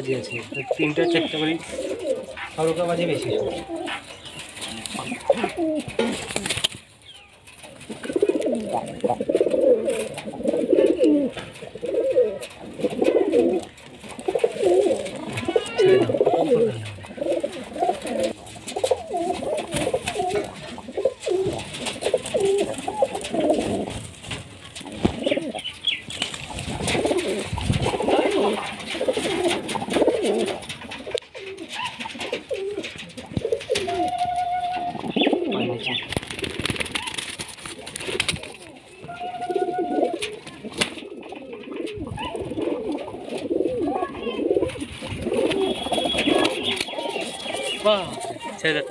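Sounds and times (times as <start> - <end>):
pigeons cooing: 0.0 - 48.9.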